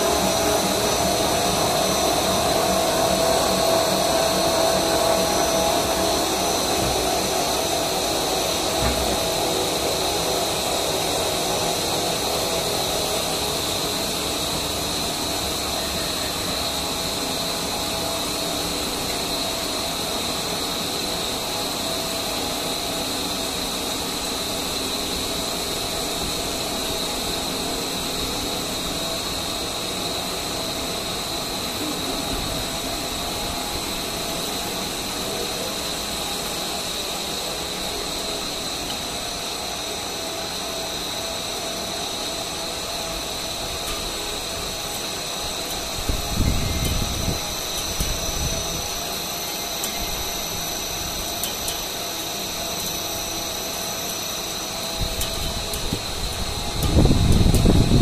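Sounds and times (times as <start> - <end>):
machine humming with high whine: 0.0 - 58.0.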